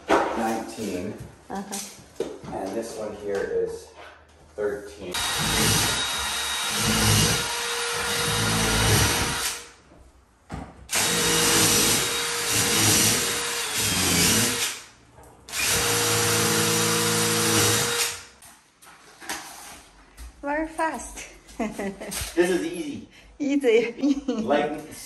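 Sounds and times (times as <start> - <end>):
impact driver driving screws: 5.2 - 9.6, 10.9 - 14.8, 15.5 - 18.3.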